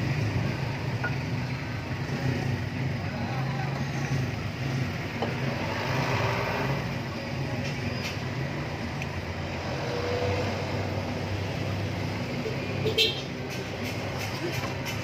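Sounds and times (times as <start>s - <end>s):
engine droning: 0.0s - 15.0s.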